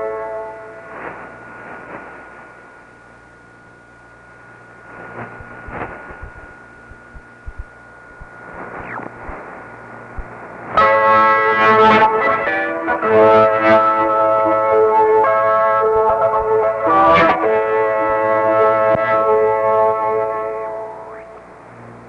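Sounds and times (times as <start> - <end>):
faint radio music: 0.0 - 22.0
radio static hiss and crackles: 0.0 - 22.0
steady radio whistle: 4.9 - 11.4.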